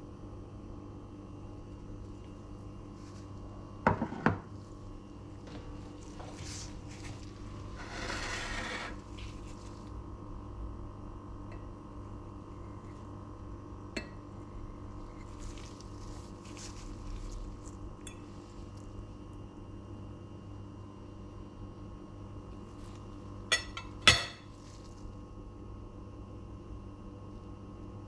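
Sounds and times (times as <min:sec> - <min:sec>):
steady low hum: 0:00.0 - 0:28.0
cutlery scraping ceramic plate: 0:07.8 - 0:09.0, 0:23.5 - 0:24.5
cutlery clinking on plate: 0:23.5 - 0:24.5.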